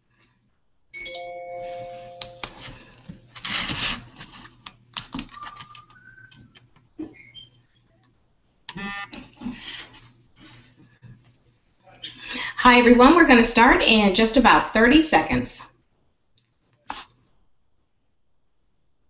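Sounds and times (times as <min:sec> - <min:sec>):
short beeps: 0:01.0 - 0:02.6
electronic chime: 0:01.0 - 0:02.9.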